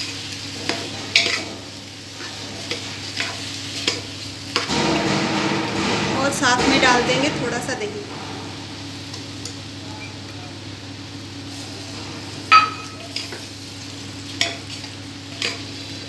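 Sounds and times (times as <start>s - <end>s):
low steady sizzle: 0.0s - 5.8s, 8.5s - 16.0s
metal spatula scraping pot: 0.6s - 8.0s
spatula clinking on metal: 0.7s - 1.6s.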